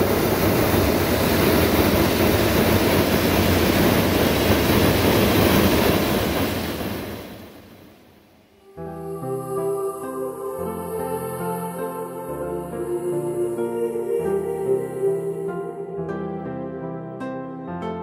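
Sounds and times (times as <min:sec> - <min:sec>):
propane burner blast: 0:00.0 - 0:08.0.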